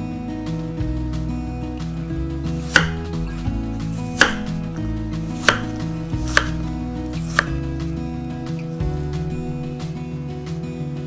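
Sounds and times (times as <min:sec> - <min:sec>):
soft background music: 0:00.0 - 0:11.0
knife chopping on wooden board: 0:02.6 - 0:03.2, 0:03.8 - 0:09.9.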